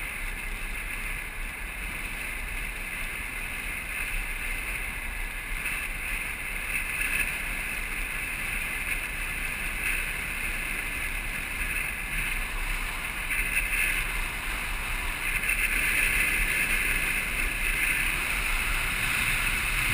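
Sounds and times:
wheels rolling on hard ground: 0:00.0 - 0:19.9.

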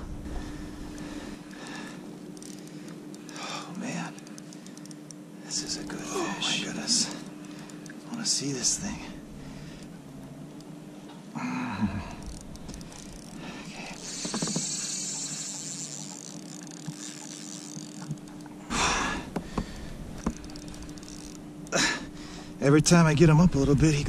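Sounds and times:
fishing reel drag buzzing: 0:00.4 - 0:10.7, 0:12.0 - 0:24.0
person breathing heavily: 0:18.7 - 0:20.0.

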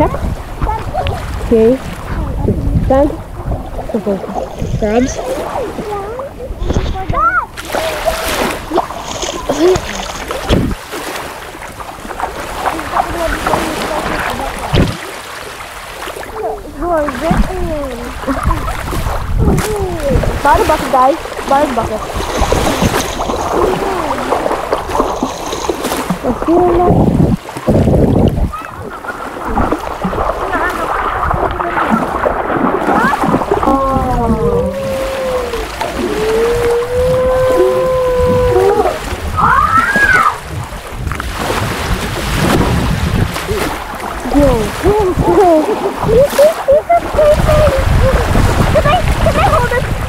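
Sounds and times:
wind buffeting microphone: 0:00.0 - 0:15.2, 0:15.9 - 0:50.0
loud water splash: 0:00.0 - 0:50.0
water sloshing: 0:00.0 - 0:50.0
hand splashing in shallow water: 0:07.6 - 0:39.3.

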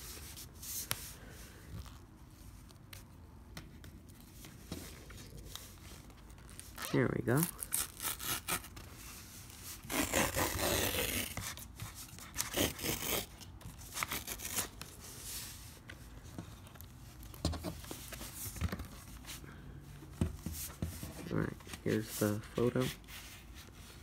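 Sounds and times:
paper envelope tearing: 0:06.4 - 0:08.9, 0:09.7 - 0:14.8.

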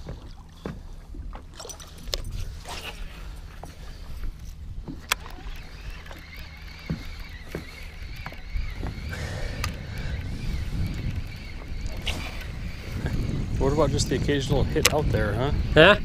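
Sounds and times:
water slapping boat hull: 0:00.0 - 0:16.0
wind rumbling on microphone: 0:00.0 - 0:16.0
faint wavering whine: 0:01.6 - 0:16.0
fishing rod and reel clicks: 0:04.3 - 0:13.4, 0:14.7 - 0:15.6.

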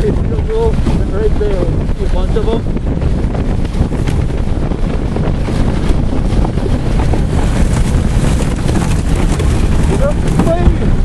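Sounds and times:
wind buffeting microphone: 0:00.0 - 0:11.0
small knocks and rattles: 0:07.4 - 0:10.8.

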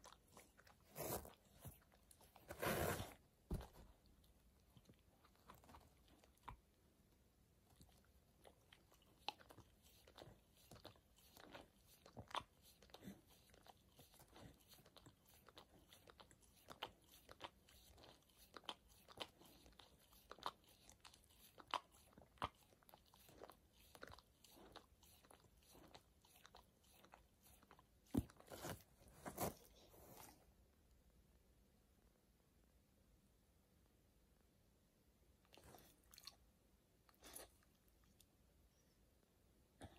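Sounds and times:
dog chewing something crunchy: 0:07.7 - 0:30.3.

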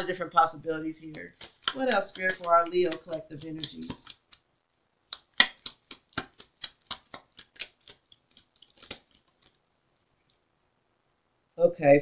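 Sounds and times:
cards being shuffled: 0:00.0 - 0:04.5, 0:05.1 - 0:09.6.

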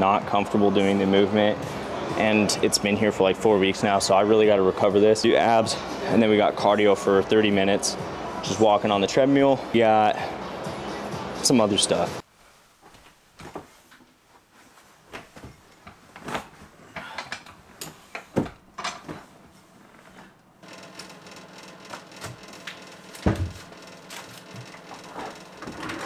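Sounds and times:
treadmill motor whirring: 0:20.6 - 0:26.0.

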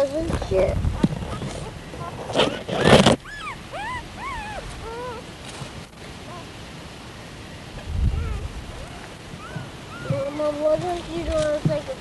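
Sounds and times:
puppies whimpering: 0:01.2 - 0:05.3, 0:08.1 - 0:11.5.

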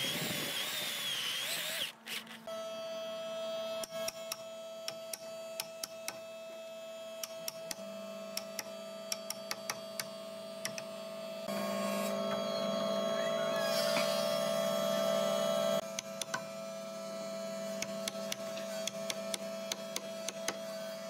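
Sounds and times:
steady hum: 0:10.2 - 0:20.4.

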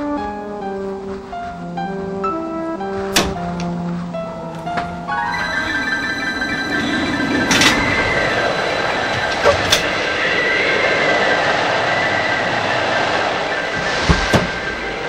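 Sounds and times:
faint high ringing tone: 0:05.2 - 0:12.8
loud rushing roar: 0:05.2 - 0:15.0.

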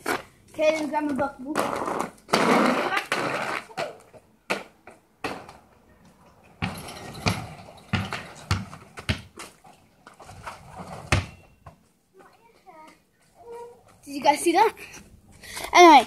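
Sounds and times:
basketball bouncing and hitting hoop: 0:04.5 - 0:05.6, 0:06.5 - 0:09.5, 0:10.3 - 0:11.8.

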